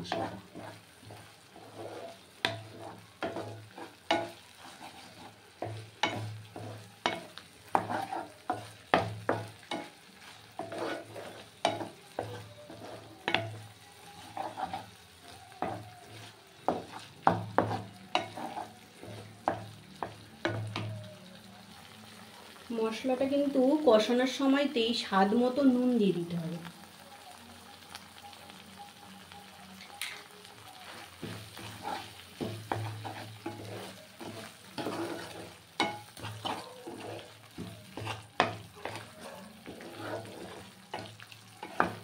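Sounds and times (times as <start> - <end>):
spatula scraping pan: 0.0 - 20.7, 30.8 - 42.0
paste sizzling in oil: 0.0 - 42.0.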